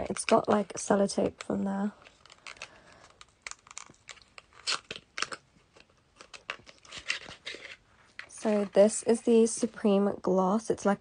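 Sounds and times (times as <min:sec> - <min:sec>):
scratchy clicks and crinkles: 0:00.0 - 0:09.9
tape peeling off cardboard: 0:02.1 - 0:07.8.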